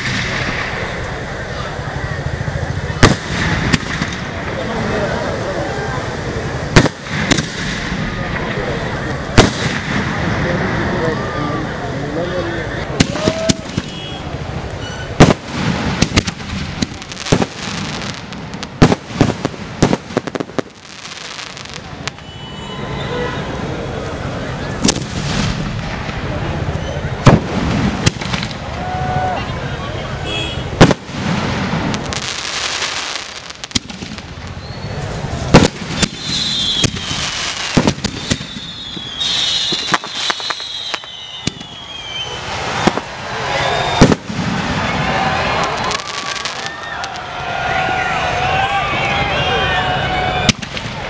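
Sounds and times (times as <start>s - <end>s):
firework shells booming: 0.0s - 1.3s, 2.4s - 5.1s, 6.4s - 10.8s, 12.9s - 22.4s, 24.8s - 26.5s, 27.1s - 28.8s, 30.3s - 47.2s, 50.4s - 51.0s
background rumble: 0.0s - 20.9s
firework crackling: 0.0s - 51.0s
high falling whistle: 36.2s - 37.3s, 38.3s - 42.5s, 43.4s - 44.2s.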